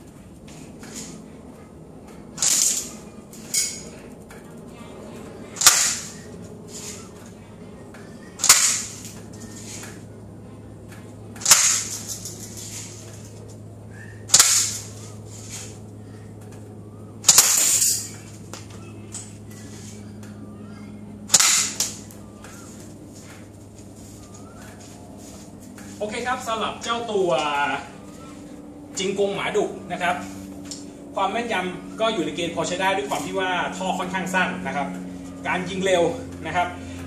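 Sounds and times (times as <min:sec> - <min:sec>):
airsoft gun sharp cracks: 0:02.4 - 0:02.9, 0:05.6 - 0:06.2, 0:08.4 - 0:09.1, 0:11.4 - 0:12.1, 0:14.3 - 0:14.9, 0:17.2 - 0:18.0, 0:21.3 - 0:22.1.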